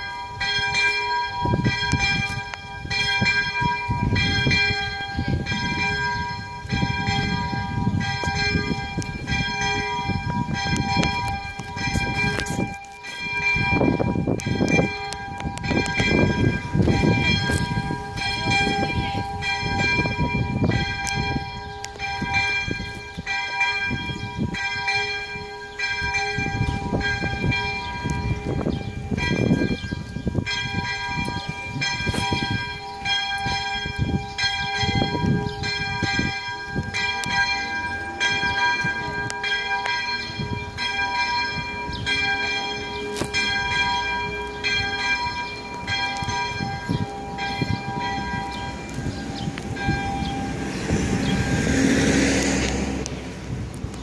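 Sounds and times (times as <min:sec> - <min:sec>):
level crossing bell ringing: 0:00.0 - 0:29.8, 0:30.4 - 0:50.8.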